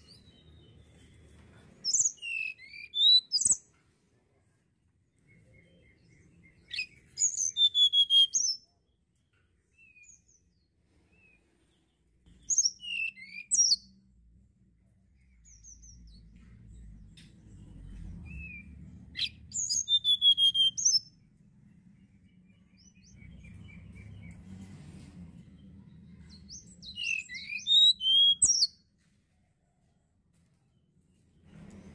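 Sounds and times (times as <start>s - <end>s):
bird singing high sweet notes: 1.9s - 3.6s, 5.5s - 8.7s, 12.3s - 14.0s, 18.3s - 21.1s, 26.2s - 28.8s
low background rumble: 13.8s - 19.9s, 20.9s - 27.3s.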